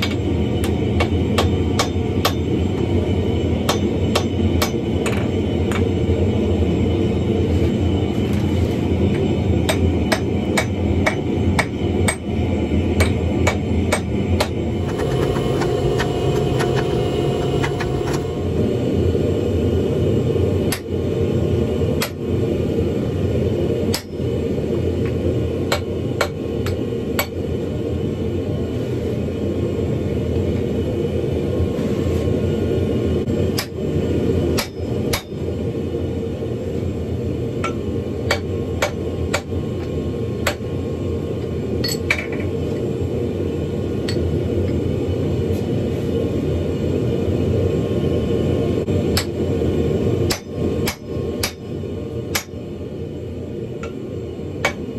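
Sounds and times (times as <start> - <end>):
hammer striking iron on an anvil: 1.0 - 2.5, 3.7 - 4.8, 9.7 - 12.3, 34.6 - 35.4, 50.3 - 51.6, 52.3 - 52.5
forge rushing noise: 14.6 - 19.6.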